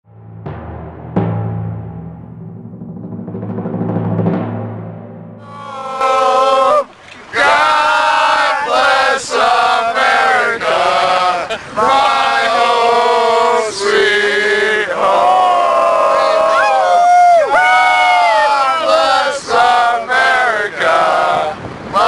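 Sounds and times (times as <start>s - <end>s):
men chanting loudly: 5.4s - 16.6s, 18.2s - 22.0s.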